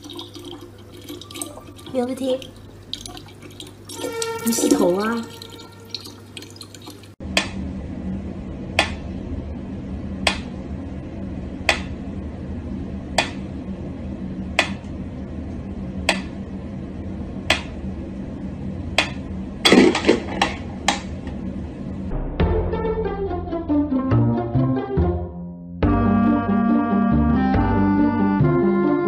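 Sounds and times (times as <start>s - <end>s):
low hum: 7.1s - 24.0s.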